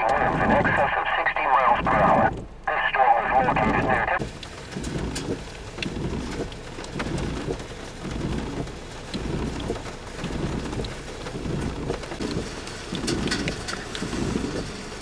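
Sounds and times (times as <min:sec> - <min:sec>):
rain and hail drumming on car roof: 0:00.0 - 0:15.0
sharp ticks of hail impacts: 0:04.2 - 0:15.0.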